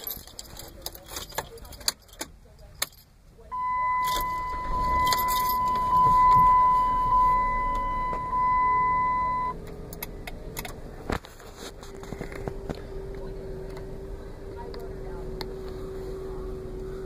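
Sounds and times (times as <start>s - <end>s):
keys jangling: 0.0s - 3.1s, 4.0s - 5.8s
faint low hum: 3.3s - 17.0s
steady electronic beep: 3.5s - 9.6s.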